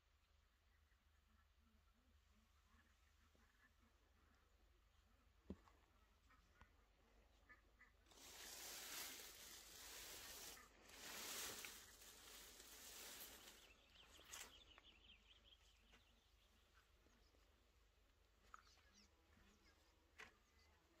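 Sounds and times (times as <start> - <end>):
leaves rustling: 8.1 - 14.8.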